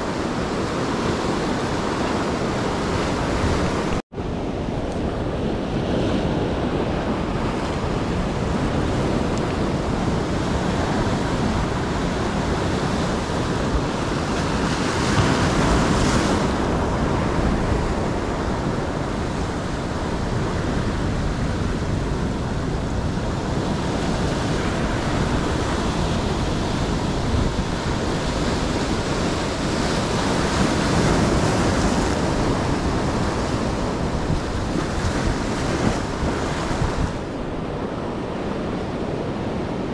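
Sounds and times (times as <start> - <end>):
ocean surf breaking: 0.0 - 39.9
wind buffeting the microphone: 0.0 - 39.9.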